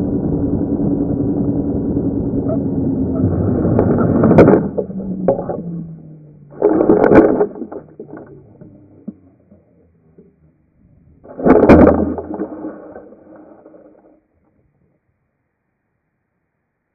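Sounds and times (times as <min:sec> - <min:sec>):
deep impact and scrape: 0:02.5 - 0:05.8, 0:06.5 - 0:09.2, 0:11.2 - 0:14.1.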